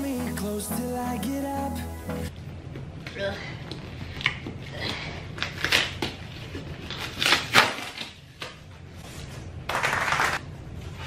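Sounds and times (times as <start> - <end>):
tape and cardboard tearing: 5.4 - 8.6.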